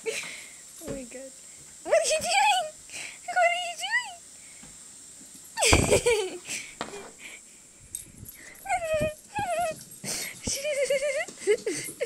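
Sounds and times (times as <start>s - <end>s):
puppy whining: 8.4s - 11.8s.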